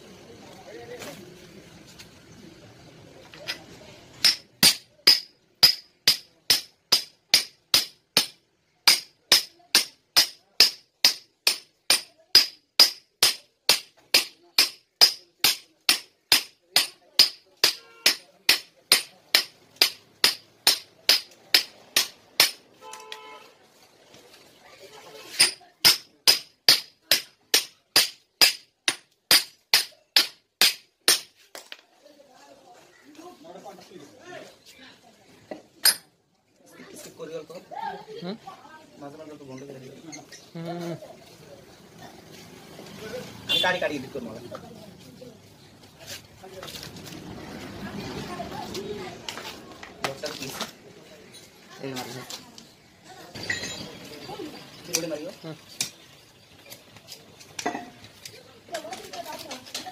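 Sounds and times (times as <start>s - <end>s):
metal pipe striking bearing: 35.8s - 36.1s.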